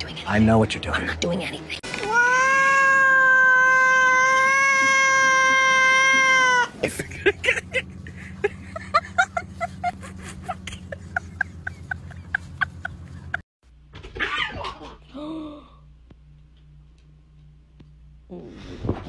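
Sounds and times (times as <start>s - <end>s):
cat meowing: 2.0s - 6.7s
low hum: 14.8s - 19.0s.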